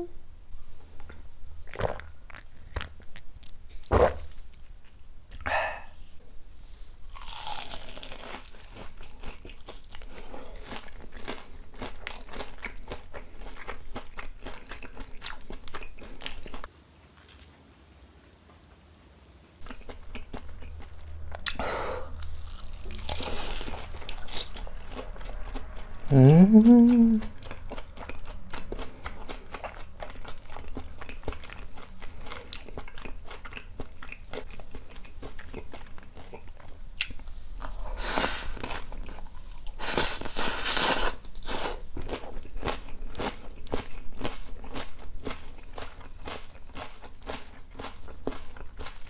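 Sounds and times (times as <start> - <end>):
person humming: 0.0 - 0.2, 26.1 - 27.4
crunching and chewing fried food: 7.1 - 17.6, 19.6 - 49.0.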